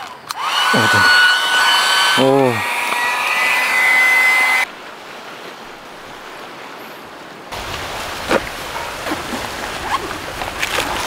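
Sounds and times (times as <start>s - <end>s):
small electric motor whining: 0.0s - 4.7s
wind: 0.0s - 11.0s
sea waves: 2.0s - 11.0s.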